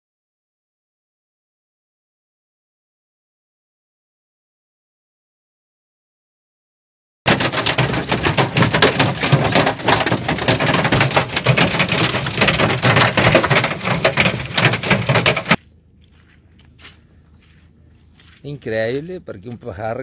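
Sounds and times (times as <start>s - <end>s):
hailstones clattering on car: 7.3s - 15.6s.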